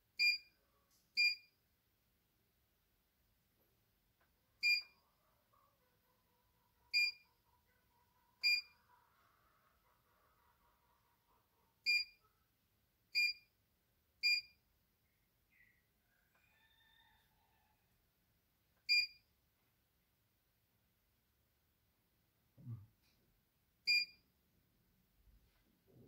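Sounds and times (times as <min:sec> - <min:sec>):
control panel beeping: 0:04.6 - 0:04.9.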